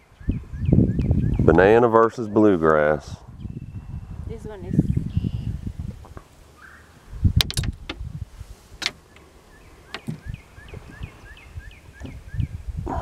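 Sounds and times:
clicks and knocks in a boat: 0:07.4 - 0:08.1, 0:08.8 - 0:11.0.

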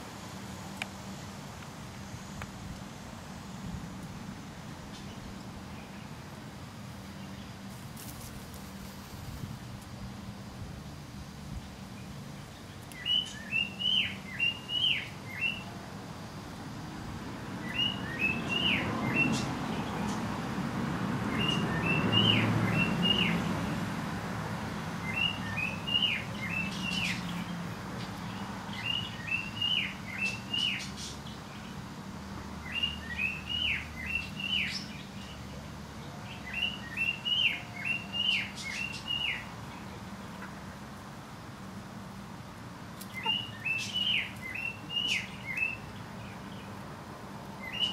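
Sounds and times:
songbird singing short phrase: 0:12.0 - 0:15.7, 0:17.6 - 0:20.2, 0:43.0 - 0:46.7, 0:47.6 - 0:47.9.

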